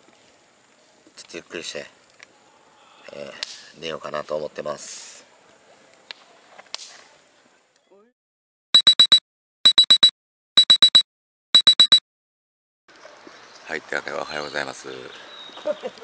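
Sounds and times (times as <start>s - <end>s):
alarm clock beeping: 8.8s - 11.0s, 11.6s - 12.0s.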